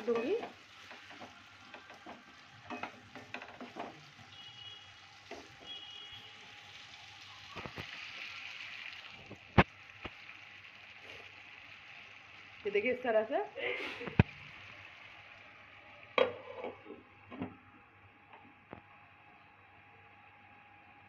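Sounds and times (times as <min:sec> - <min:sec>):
potatoes sizzling in a pan: 0:00.0 - 0:16.6.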